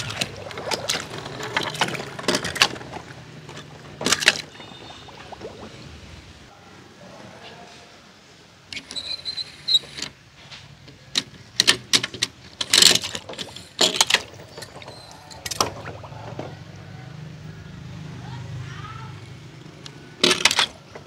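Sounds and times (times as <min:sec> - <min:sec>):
toys clacking and knocking: 0:00.0 - 0:04.6, 0:11.0 - 0:16.5, 0:20.2 - 0:21.0.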